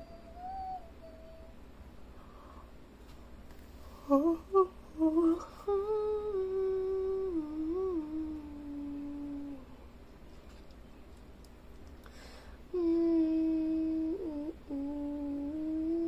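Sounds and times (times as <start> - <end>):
person humming: 0.0 - 1.6, 3.9 - 9.9, 12.7 - 16.0.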